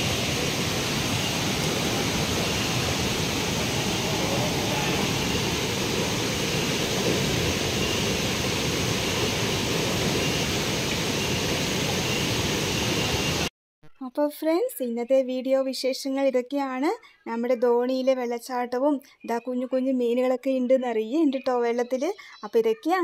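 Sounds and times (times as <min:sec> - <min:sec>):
flowing stream water: 0:00.0 - 0:13.5.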